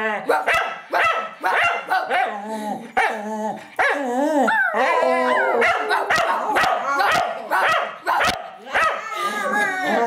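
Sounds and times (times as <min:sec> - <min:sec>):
dog yipping and barking: 0:00.3 - 0:02.4
dog howling: 0:03.1 - 0:07.7.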